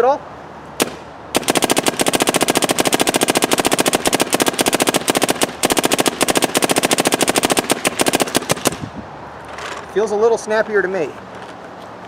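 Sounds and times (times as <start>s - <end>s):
paintball marker firing rapid pops: 0.8s - 8.8s.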